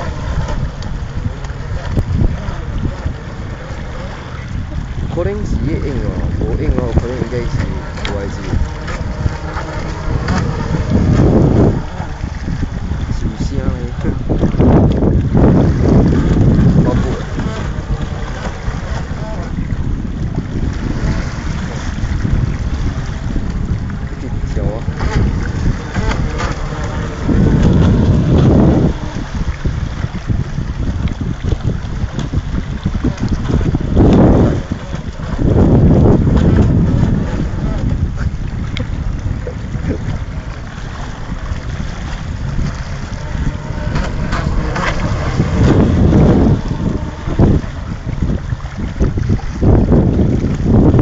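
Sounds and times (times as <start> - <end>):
choppy water washing: 0.0 - 51.0
wind buffeting microphone: 0.0 - 51.0.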